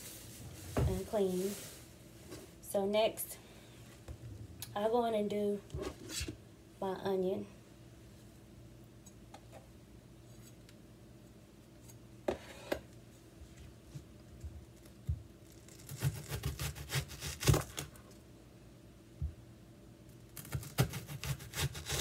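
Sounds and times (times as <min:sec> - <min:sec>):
knife cutting onion: 0:15.7 - 0:17.9, 0:20.4 - 0:22.0.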